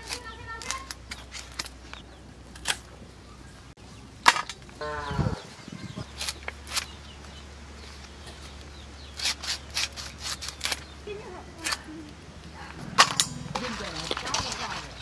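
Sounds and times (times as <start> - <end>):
farm animal call: 4.8 - 6.1.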